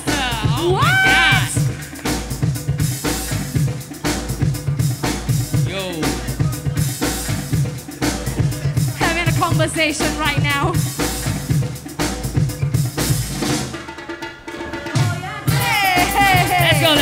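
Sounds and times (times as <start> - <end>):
breakbeat music: 0.0 - 17.0.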